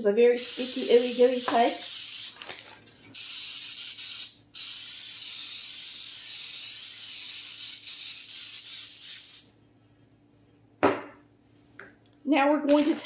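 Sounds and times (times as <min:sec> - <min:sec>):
aerosol spray hissing: 0:00.4 - 0:02.5, 0:03.2 - 0:09.5.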